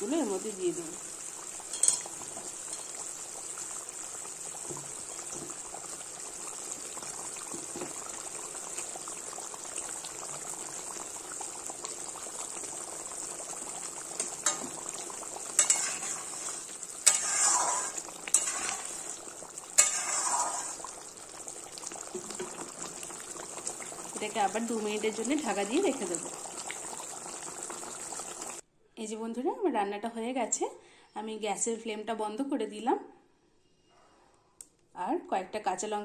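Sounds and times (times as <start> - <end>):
gravy bubbling and hissing: 0.0 - 28.6.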